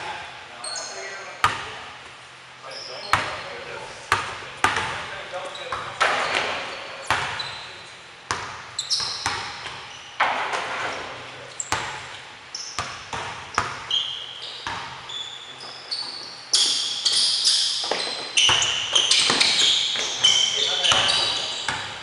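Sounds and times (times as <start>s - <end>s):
sneakers squeaking: 0.6s - 22.0s
basketball bouncing on wood floor: 7.1s - 7.4s, 8.3s - 10.7s, 11.7s - 12.1s, 12.8s - 13.9s, 14.6s - 15.1s, 17.8s - 20.3s, 20.9s - 22.0s.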